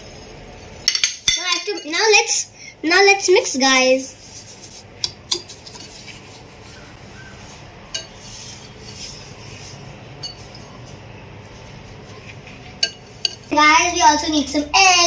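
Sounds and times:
whisk scraping in glass bowl: 4.2 - 12.2
whisk wires clinking on glass: 7.9 - 8.2, 10.2 - 10.8, 12.8 - 13.5.

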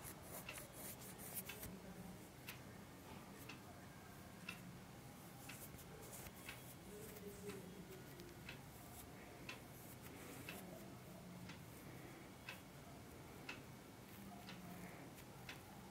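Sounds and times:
faint steady hum: 0.0 - 15.9
clock ticking: 0.2 - 1.7, 2.4 - 2.6, 4.4 - 4.7, 5.4 - 15.9.

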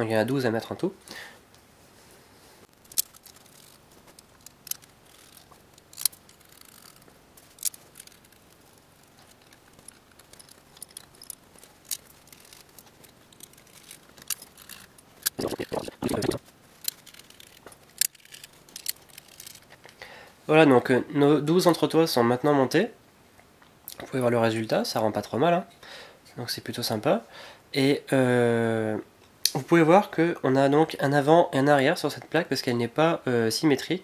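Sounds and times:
small metal parts clicking: 2.8 - 20.0.

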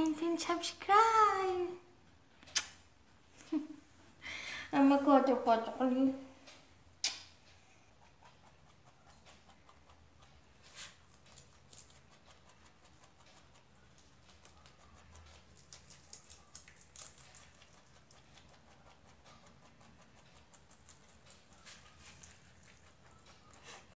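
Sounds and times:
rabbit chewing crunchy greens: 7.0 - 24.0.

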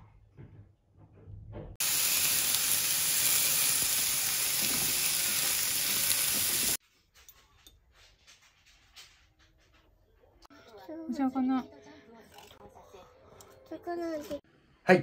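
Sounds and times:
chicken sizzling in a frying pan: 1.8 - 6.8.

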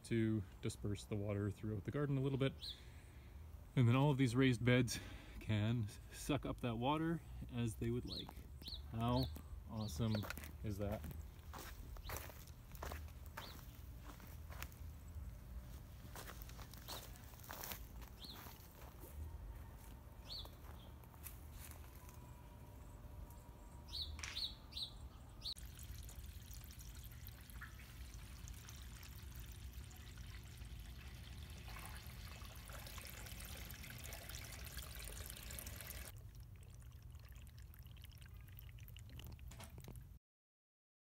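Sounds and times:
bird chirps: 8.1 - 10.4, 23.3 - 25.6.

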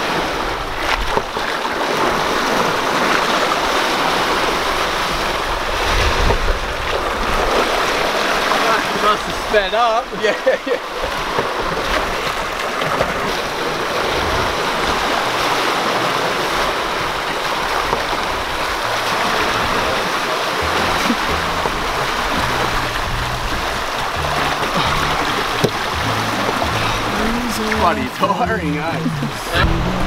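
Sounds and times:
seawater rushing and splashing: 0.0 - 30.0
background music: 18.8 - 30.0.

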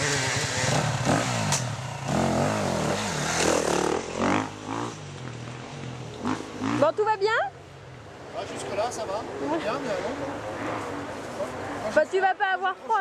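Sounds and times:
dirt bike engine revving: 0.0 - 7.2.

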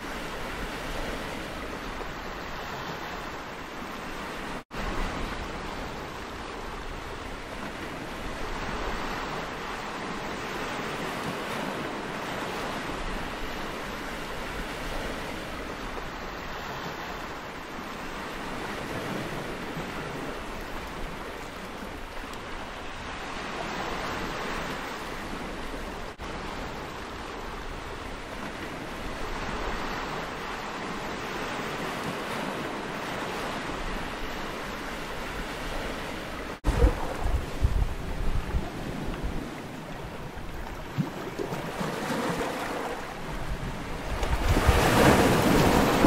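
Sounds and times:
waves breaking over boulders: 0.0 - 46.0
wind buffeting microphone: 18.0 - 46.0.

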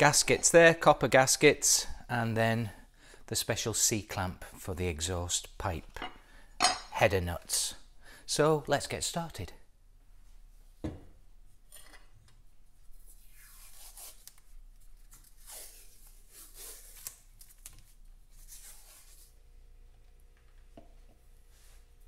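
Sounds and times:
knock: 10.8 - 11.1.

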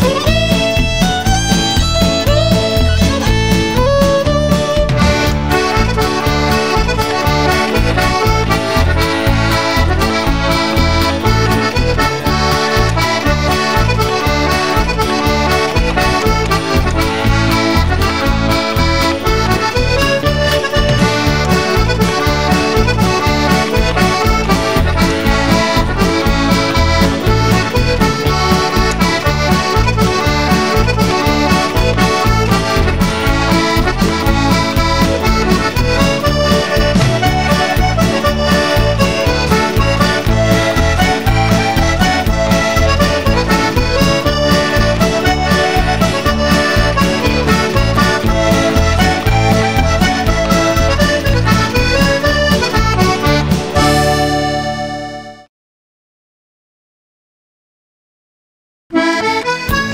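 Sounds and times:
upbeat instrumental music: 0.0 - 55.5, 58.9 - 59.9.

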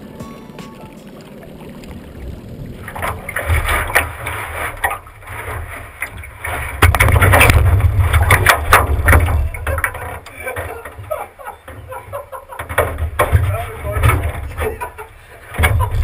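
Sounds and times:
low rumble of rocking boat: 0.0 - 16.0
thumps and scrapes on boat hull: 3.0 - 12.0, 12.6 - 16.0.

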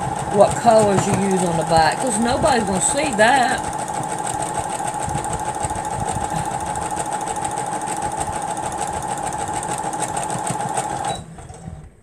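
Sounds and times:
sewing machine running: 0.0 - 12.0.

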